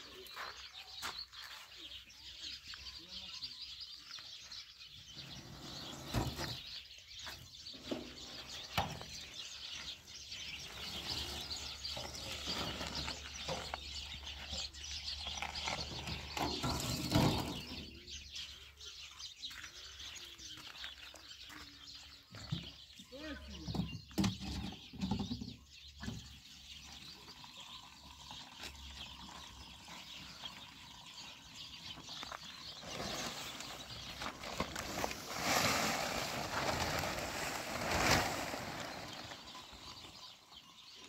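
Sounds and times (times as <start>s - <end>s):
birds chirping: 0.0s - 41.0s
rustling: 32.1s - 40.0s.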